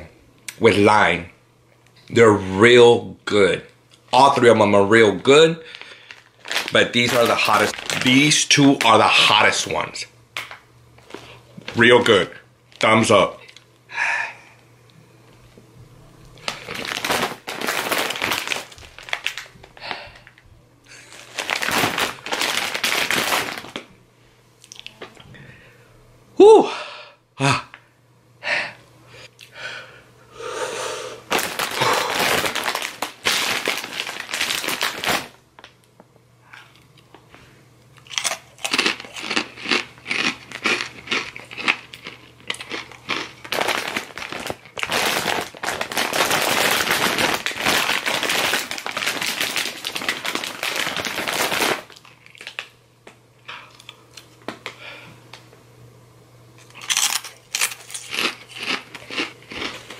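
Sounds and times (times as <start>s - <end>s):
snack bag crinkling: 5.6s - 9.6s, 16.4s - 20.4s, 21.0s - 23.9s, 31.3s - 35.7s, 38.0s - 52.8s, 56.6s - 59.9s
chips being chewed: 5.7s - 9.0s, 31.3s - 35.3s, 38.0s - 52.7s, 56.6s - 59.9s.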